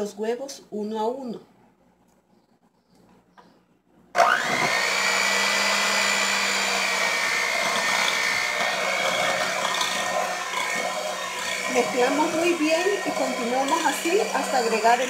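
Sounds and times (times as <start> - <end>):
electric hand mixer whine: 4.2 - 15.0.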